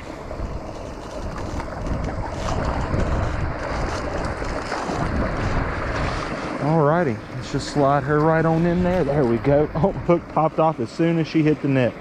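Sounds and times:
wind buffeting the microphone: 0.0 - 10.8
creek water rushing: 0.0 - 12.0
fish splashing at the surface: 1.2 - 6.8.

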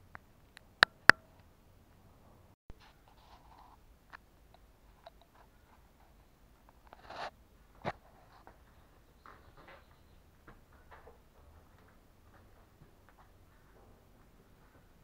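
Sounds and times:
brief rustle: 6.7 - 8.6.

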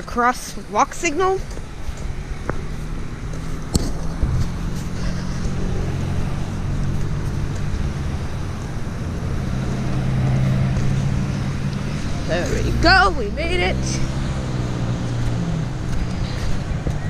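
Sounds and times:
car engines humming: 0.0 - 17.0.

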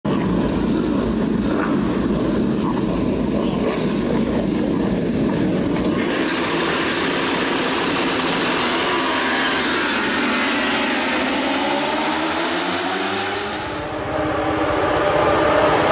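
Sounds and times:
motorcycle engines revving: 0.1 - 15.9.

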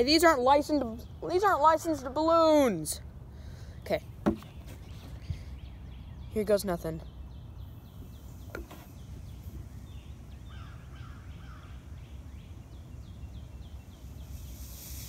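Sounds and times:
birds chirping: 0.0 - 15.0
vinegar fizzing hiss: 14.0 - 15.0.

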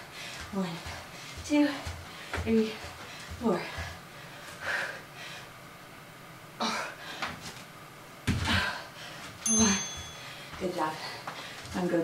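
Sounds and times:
woman gasping breaths: 2.1 - 5.6.

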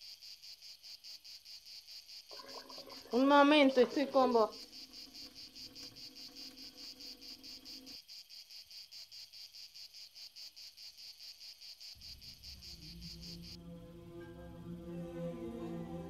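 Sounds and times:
insects chirping: 0.0 - 13.7
low drone: 12.5 - 16.0.

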